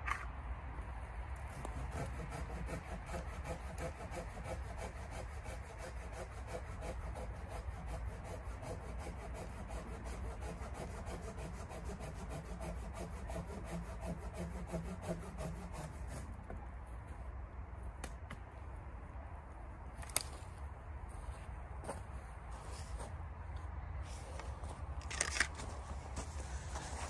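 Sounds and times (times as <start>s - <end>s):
hand saw cutting branch: 1.4s - 16.4s.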